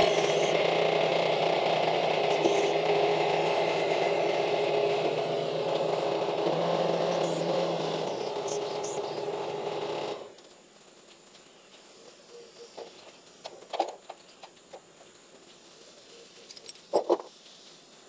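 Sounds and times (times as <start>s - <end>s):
diesel engine idling: 0.0s - 10.4s.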